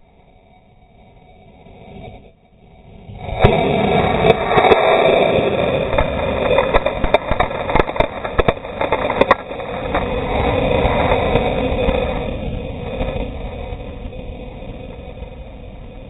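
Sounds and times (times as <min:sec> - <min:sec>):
rocket exhaust roar: 0:00.0 - 0:16.0
rush of dust: 0:03.0 - 0:16.0
grit striking camera: 0:05.8 - 0:11.2.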